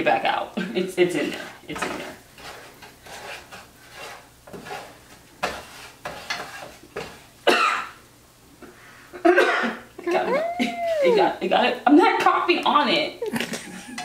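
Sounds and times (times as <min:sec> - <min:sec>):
spatula scraping a skillet: 0:01.0 - 0:07.4
woman coughing: 0:07.5 - 0:08.0, 0:09.2 - 0:11.2.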